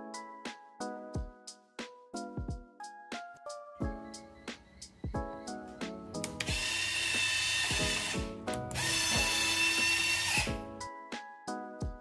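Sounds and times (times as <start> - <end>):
background music: 0.0 - 12.0
small electric motor whirring: 6.4 - 8.2, 8.8 - 10.5.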